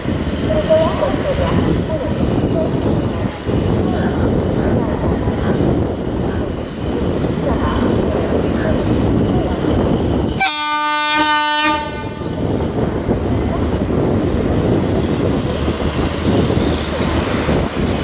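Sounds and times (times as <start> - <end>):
train rumbling: 0.0 - 18.0
locomotive horn blast: 10.4 - 12.3.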